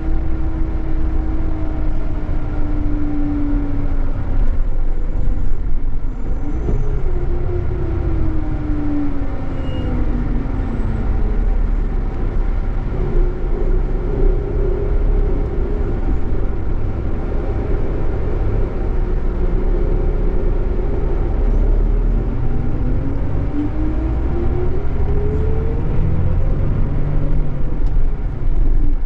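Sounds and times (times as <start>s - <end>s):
diesel bus engine: 0.0s - 29.0s
road rumble: 0.0s - 29.0s.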